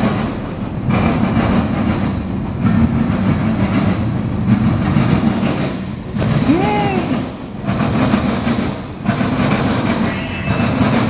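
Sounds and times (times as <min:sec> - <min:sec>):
freight train rumbling past: 0:00.0 - 0:11.0.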